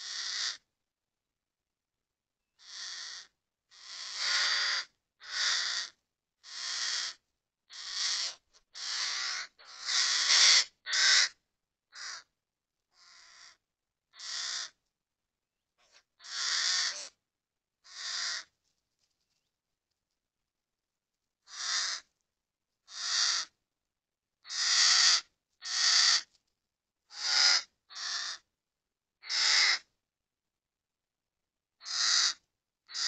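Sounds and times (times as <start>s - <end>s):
crow cawing harshly: 0.0s - 0.6s, 2.6s - 12.3s, 13.0s - 13.6s, 14.2s - 14.8s, 16.2s - 17.2s, 17.8s - 18.5s, 21.5s - 22.1s, 22.9s - 23.6s, 24.5s - 26.3s, 27.1s - 28.5s, 29.2s - 29.9s, 31.8s - 33.0s.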